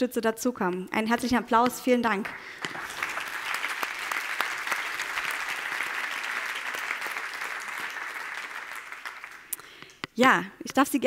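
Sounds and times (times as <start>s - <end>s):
audience applause: 2.3s - 9.6s.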